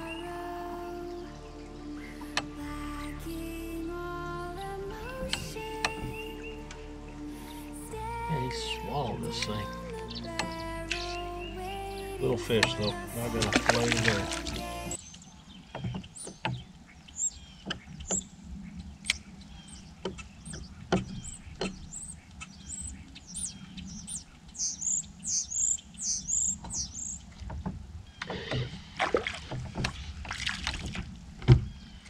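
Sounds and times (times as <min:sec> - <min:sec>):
bird chirping: 0:00.0 - 0:30.2, 0:31.4 - 0:32.0
fish splashing at surface: 0:13.2 - 0:15.0.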